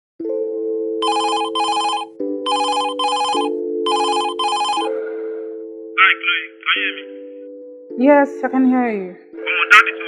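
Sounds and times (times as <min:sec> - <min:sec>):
background music chords: 0:00.2 - 0:10.0
phone ringing: 0:01.0 - 0:05.0.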